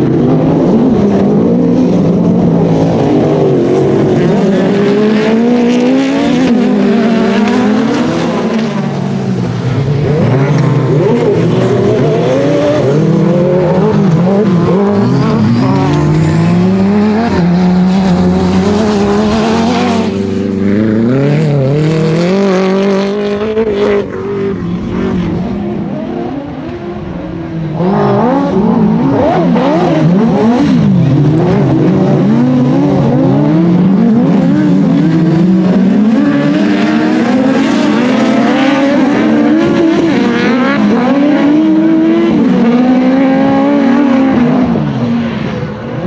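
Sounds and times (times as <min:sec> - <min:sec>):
racing buggy engines revving: 0:00.0 - 0:46.0.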